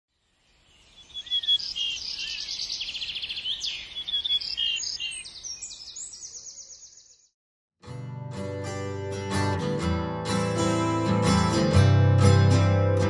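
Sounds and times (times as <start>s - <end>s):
songbird trilling and chirping: 0.1s - 7.3s.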